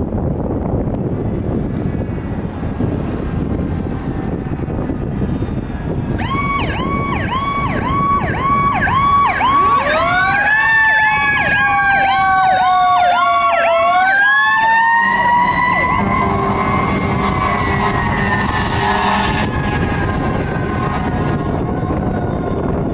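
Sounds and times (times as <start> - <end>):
electronic siren cycling: 6.1 - 22.9.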